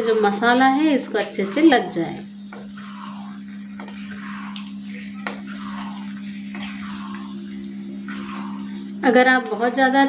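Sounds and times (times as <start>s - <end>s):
gravy bubbling: 0.0s - 10.0s
low hum: 0.0s - 10.0s
spatula tapping pan: 2.4s - 7.0s
spatula swishing through gravy: 2.4s - 9.1s.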